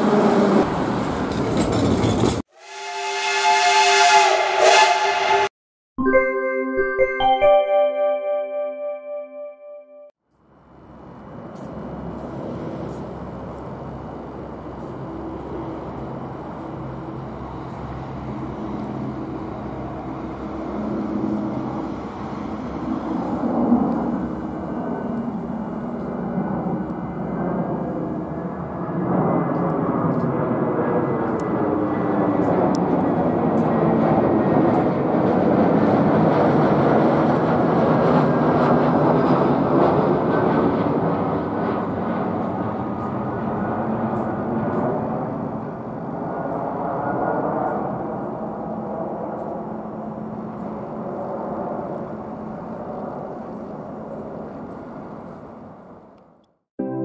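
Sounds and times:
jet airliner passing overhead: 10.7s - 56.1s.

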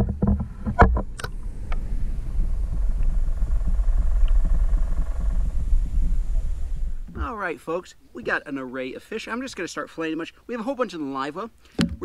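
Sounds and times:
underwater throbbing rumble: 0.0s - 7.3s
faint hum: 0.0s - 7.4s.

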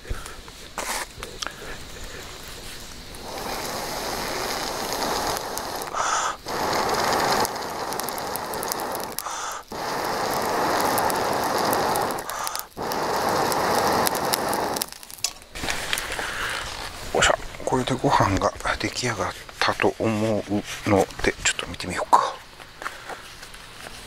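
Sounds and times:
steady hiss: 0.0s - 24.0s
wood fire crackling: 0.0s - 24.0s.

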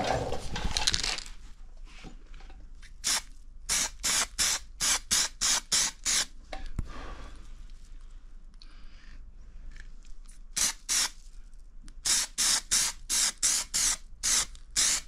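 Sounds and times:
aerosol can spraying: 3.0s - 6.3s, 10.6s - 11.2s, 12.0s - 15.0s.

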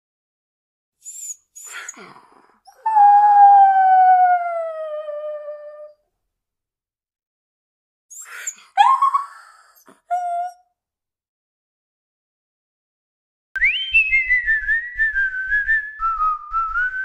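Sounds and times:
dog howling: 2.7s - 6.0s.

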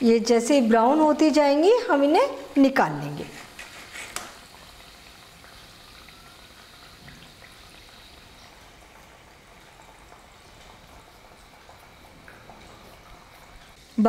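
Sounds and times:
oil sizzling while deep-frying: 0.0s - 14.0s
faint oil pops: 3.6s - 4.4s.

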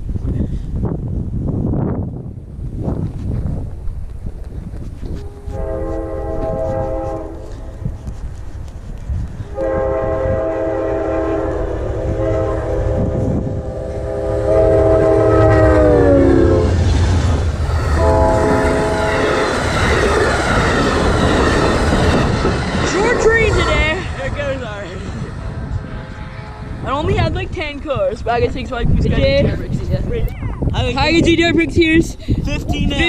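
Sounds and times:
train cars rushing and clattering: 1.1s - 29.9s
train horn blasts: 5.1s - 8.0s, 9.4s - 17.0s, 17.8s - 19.5s, 25.8s - 27.1s.

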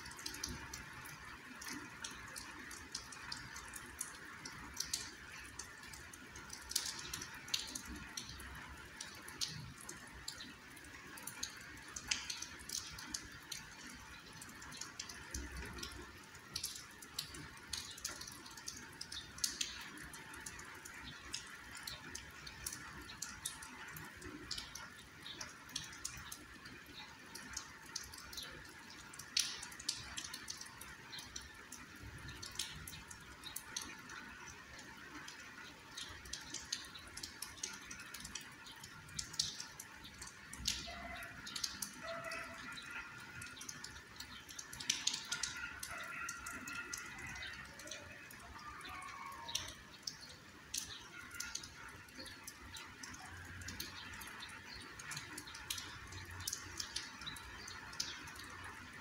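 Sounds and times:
raindrops ticking: 0.0s - 59.0s
soft rain hiss: 0.0s - 59.0s.

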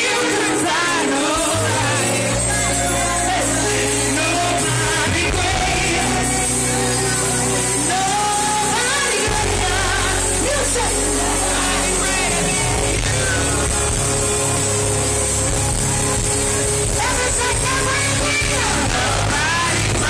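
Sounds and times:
woman singing gospel into microphone: 0.0s - 14.3s, 16.8s - 20.0s
band playing: 0.0s - 20.0s
bass guitar: 0.0s - 20.0s.

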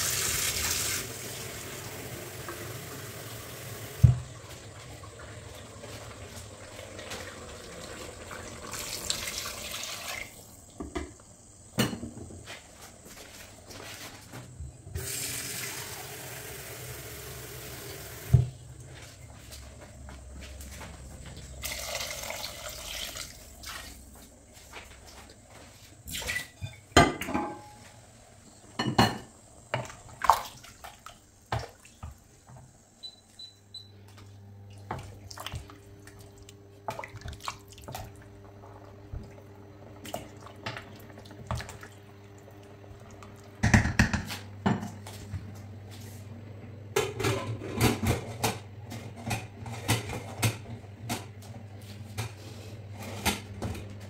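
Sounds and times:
water poured into a pot: 4.8s - 10.4s, 21.6s - 24.0s
cookware clattering: 26.6s - 27.8s.

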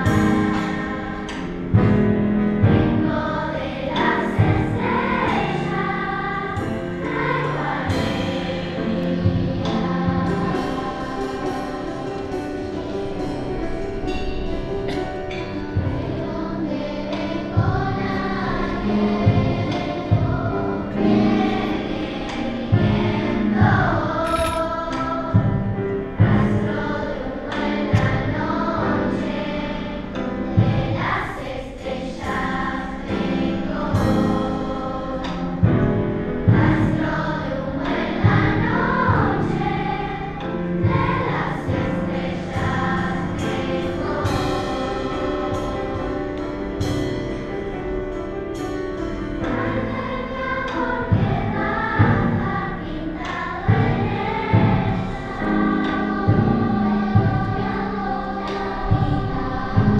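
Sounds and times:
children's choir singing: 0.0s - 59.9s.

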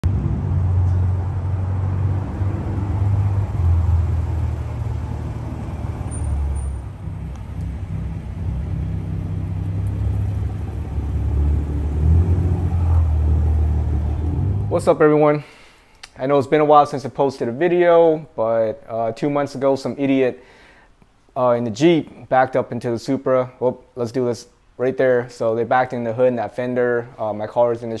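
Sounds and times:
car engine rumbling by: 0.0s - 15.0s.

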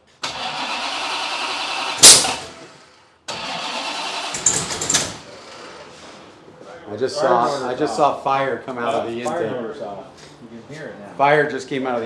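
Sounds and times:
engine cranking and sputtering: 0.2s - 5.8s
engine backfire bang: 1.6s - 5.2s.

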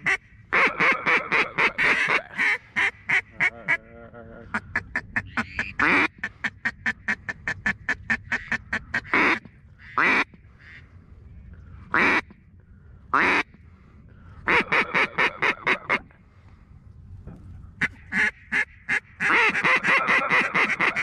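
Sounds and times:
duck call clucks and quacks: 0.0s - 10.9s, 11.9s - 12.4s, 13.2s - 13.5s, 14.5s - 16.1s, 17.8s - 21.0s.

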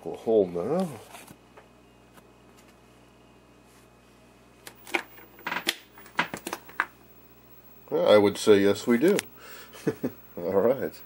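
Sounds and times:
faint steady hum: 0.0s - 11.0s
television crackles and clicks: 4.7s - 7.4s.

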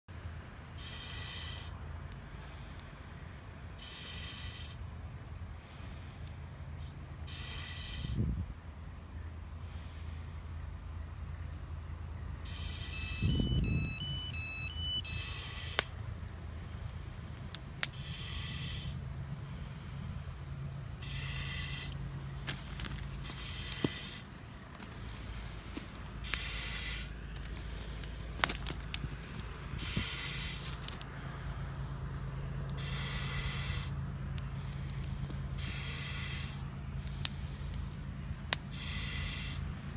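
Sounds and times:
steady low rumble: 0.1s - 39.9s
breathing through a regulator: 3.8s - 4.8s, 9.6s - 10.4s, 18.0s - 20.2s, 32.8s - 37.8s, 38.7s - 39.6s
electronic alert melody: 12.8s - 15.5s
gear clicks and rattles: 24.7s - 31.1s.

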